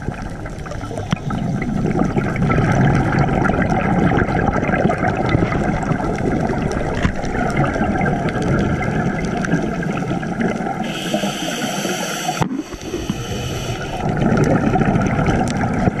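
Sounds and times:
exhaled bubbles gurgling underwater: 0.0 - 16.0
regulator hissing inhalation: 10.8 - 14.1.

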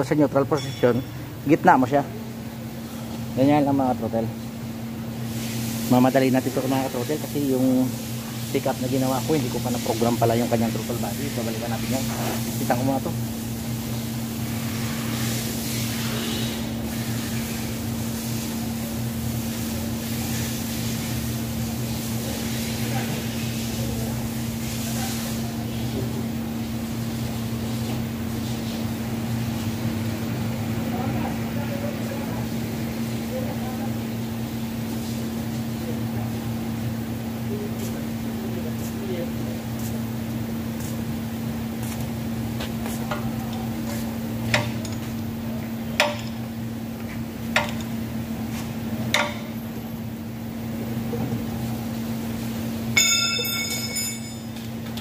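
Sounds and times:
workshop machinery humming: 0.0 - 55.0
sharp metallic clinks: 0.5 - 1.3, 53.0 - 54.6.

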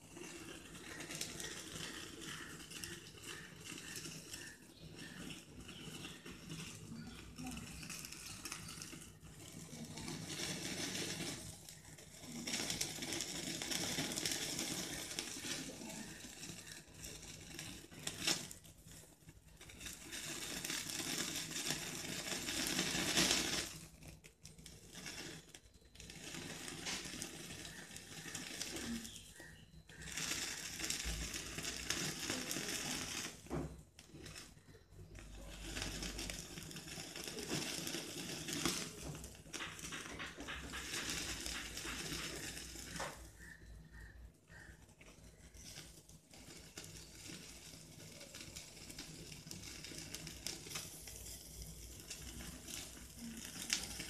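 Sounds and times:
skewer sizzling over flame: 0.0 - 54.0.

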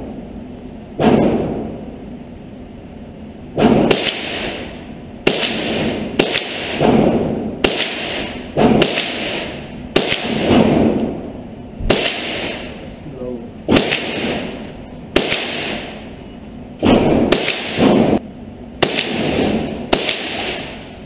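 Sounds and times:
handgun gunshots indoors: 3.6 - 11.1, 11.8 - 12.8, 13.7 - 14.6, 15.2 - 15.9, 16.8 - 18.2, 18.8 - 20.8.

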